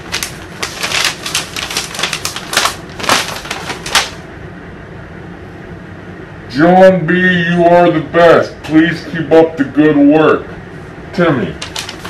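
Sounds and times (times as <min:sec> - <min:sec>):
paper crinkling as unfolded: 0:00.0 - 0:04.2, 0:11.6 - 0:12.0.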